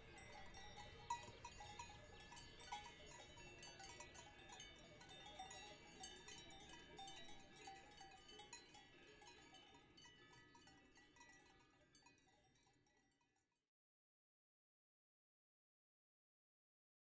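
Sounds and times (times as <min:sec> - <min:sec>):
livestock bells clanging: 0:00.0 - 0:13.1.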